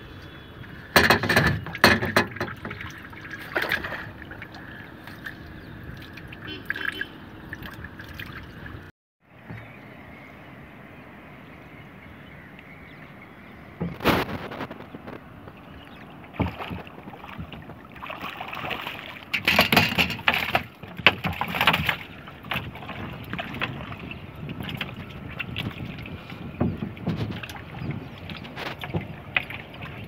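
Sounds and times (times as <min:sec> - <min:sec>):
water trickling and dripping: 0:00.2 - 0:08.9
sharp splashes and knocks: 0:00.9 - 0:09.7, 0:13.8 - 0:30.0.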